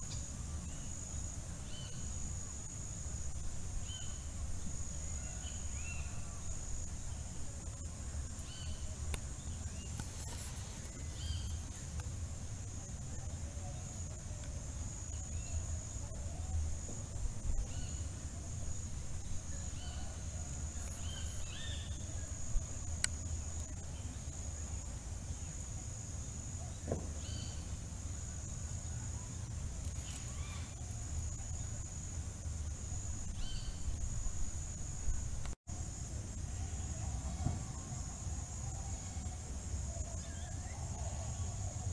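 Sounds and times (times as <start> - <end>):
high-pitched insect trill: 0.0 - 41.9.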